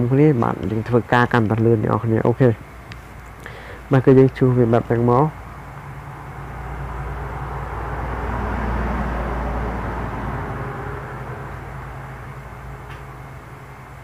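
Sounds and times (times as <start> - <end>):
low rushing noise: 1.8 - 14.0.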